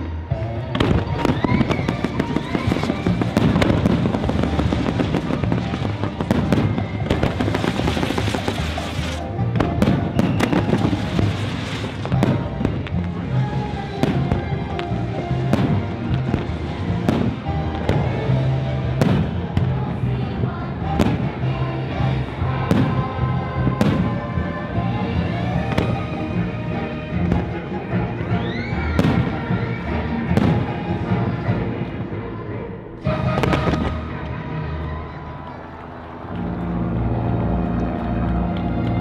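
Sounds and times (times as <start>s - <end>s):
loud music: 0.0s - 39.0s
fireworks bangs and pops: 0.7s - 13.2s, 15.5s - 18.1s, 33.2s - 34.0s.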